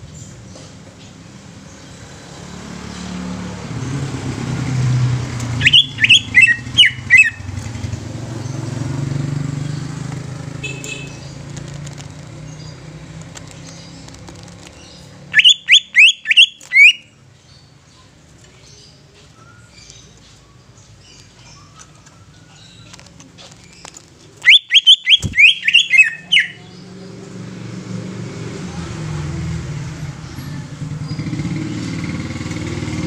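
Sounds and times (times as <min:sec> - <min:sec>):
bird whistling rising notes: 0:05.5 - 0:07.5, 0:15.3 - 0:17.0, 0:24.4 - 0:26.6.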